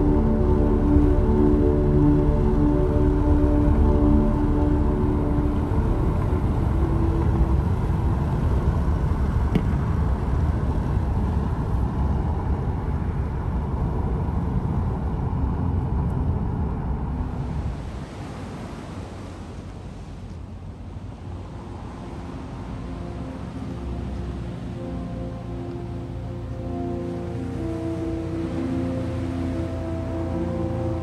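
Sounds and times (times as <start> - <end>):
road and wind noise: 0.0 - 31.0.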